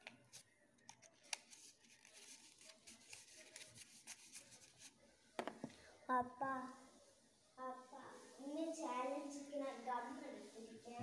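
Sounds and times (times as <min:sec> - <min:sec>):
clicks and rustles of handling paper: 0:00.0 - 0:05.0.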